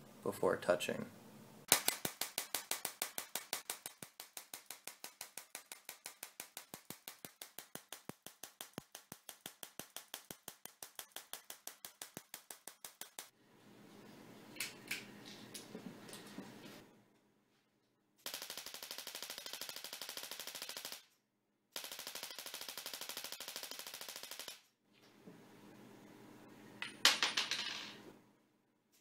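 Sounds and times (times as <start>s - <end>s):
tesla coil spark snaps: 1.7s - 13.3s.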